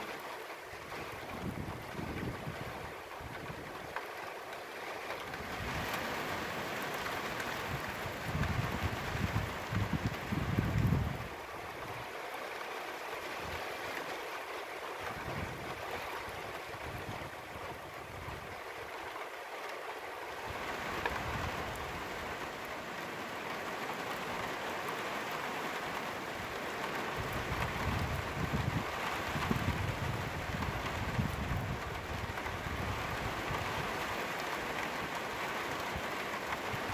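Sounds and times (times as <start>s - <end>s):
rain on a flat roof: 0.0s - 36.9s
wind buffeting microphone: 0.9s - 3.9s, 7.4s - 12.0s, 15.0s - 18.9s, 20.4s - 22.5s, 26.3s - 34.4s.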